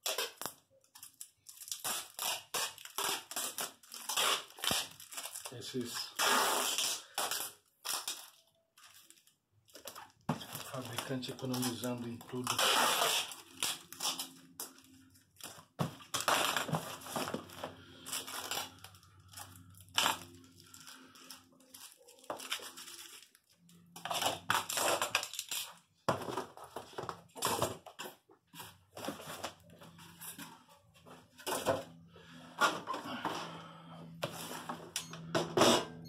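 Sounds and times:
packing tape ripping off roll: 0.0 - 25.9
cardboard scraping and crinkling: 15.8 - 18.8, 26.1 - 31.9.

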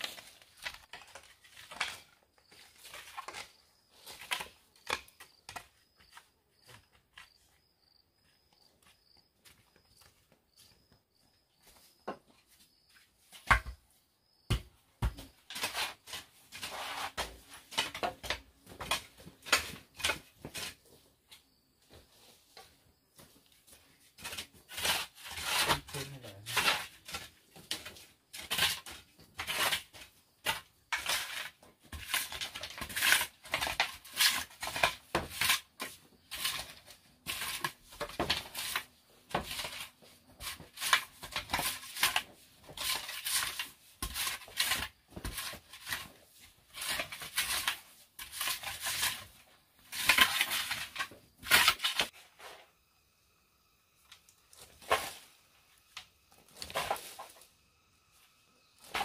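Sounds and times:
crickets chirping: 1.8 - 17.6, 18.3 - 31.6, 35.6 - 59.0
metal shovel scraping soil: 15.4 - 20.9, 24.2 - 52.8, 54.5 - 57.5, 58.7 - 59.0.

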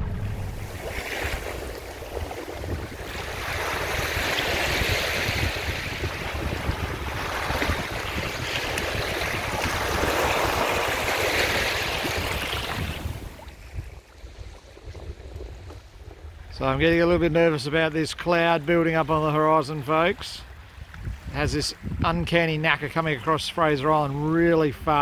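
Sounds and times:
wind rumbling on microphone: 0.0 - 17.9, 20.4 - 22.5
surf washing up a beach: 0.0 - 25.0.

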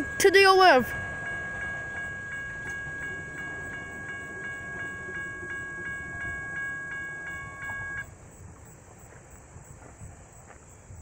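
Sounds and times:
railroad crossing bell ringing: 0.0 - 8.1.

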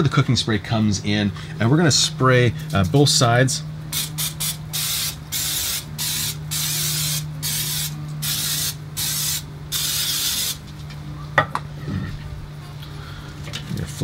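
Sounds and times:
aerosol can spraying: 4.0 - 10.6.

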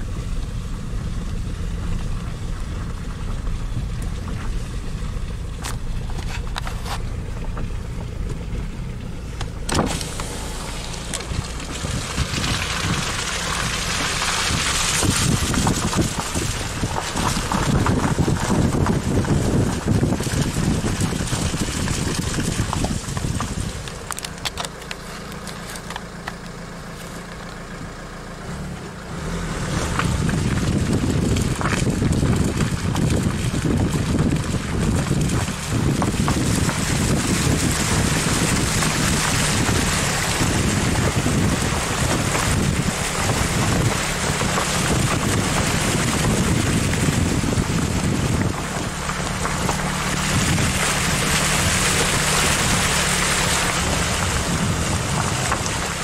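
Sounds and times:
vehicle engine running: 0.0 - 56.0
wheels rushing through water: 0.0 - 56.0.

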